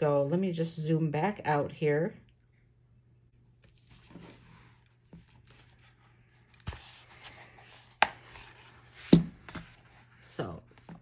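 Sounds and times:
rustling and scraping of planners: 3.6s - 11.0s.

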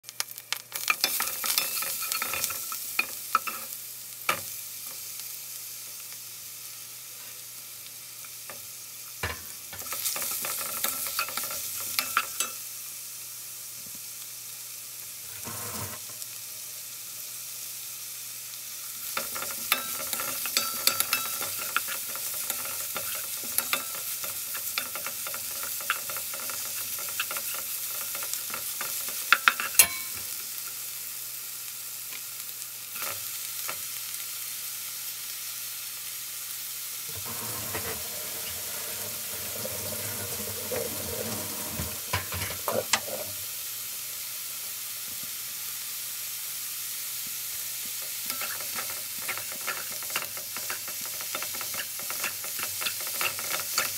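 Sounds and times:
garlic and onions sizzling in oil: 0.0s - 53.9s
spatula scraping a pan: 0.8s - 4.4s, 9.7s - 12.6s, 15.3s - 16.2s, 19.0s - 30.2s, 37.1s - 43.4s, 48.0s - 53.9s.

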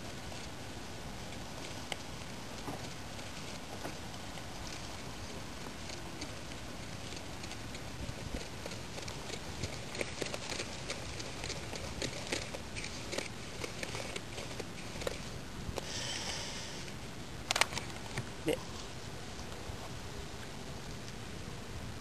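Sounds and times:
steady background hiss: 0.0s - 22.0s
fingers mixing powder in plastic bowl: 1.3s - 15.4s.

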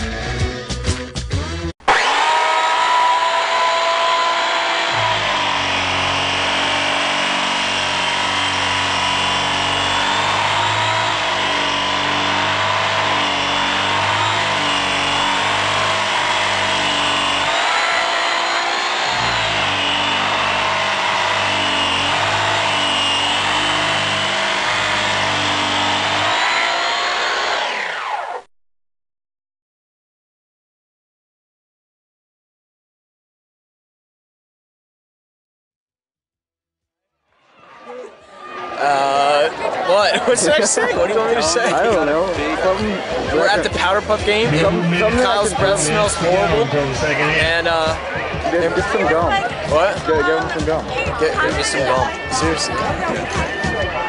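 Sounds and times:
harsh wavering whine: 1.8s - 28.5s, 40.1s - 54.0s.

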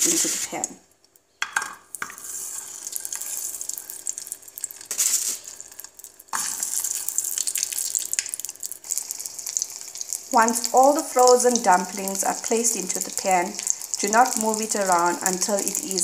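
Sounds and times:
dumplings sizzling in hot oil: 1.8s - 16.0s.

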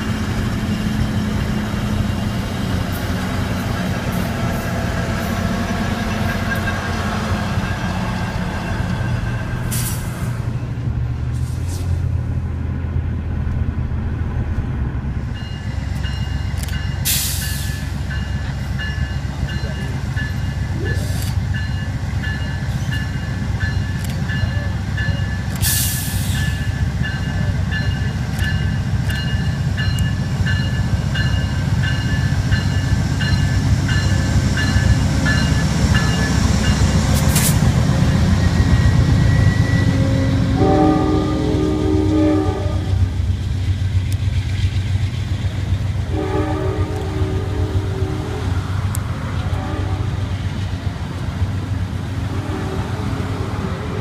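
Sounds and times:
diesel locomotive rumble: 0.0s - 54.0s
train wheels on rails: 0.0s - 54.0s
train bell ringing: 6.0s - 9.8s, 15.3s - 37.1s, 38.0s - 41.2s.

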